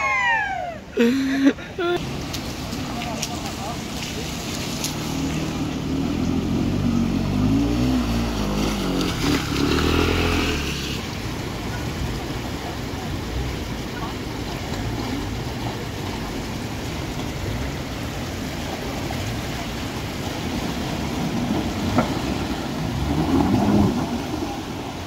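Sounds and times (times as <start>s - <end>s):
vehicle engine revving: 4.7s - 11.0s.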